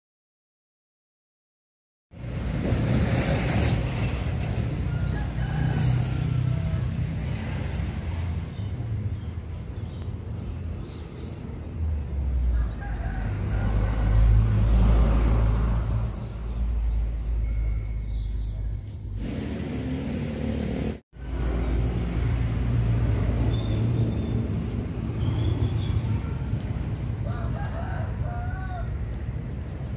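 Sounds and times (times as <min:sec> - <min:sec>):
rooster crowing: 0:04.8 - 0:07.2, 0:12.5 - 0:14.2, 0:27.2 - 0:29.2.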